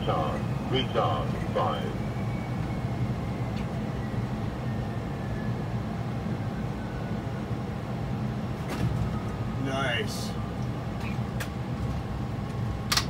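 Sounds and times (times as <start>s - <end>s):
faint high whine: 0.0s - 5.6s
engine and airflow rumble: 0.0s - 13.0s.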